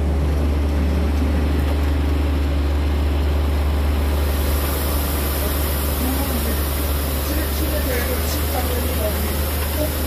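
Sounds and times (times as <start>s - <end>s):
sprayer engine running: 0.0s - 10.0s
high hiss: 4.0s - 10.0s.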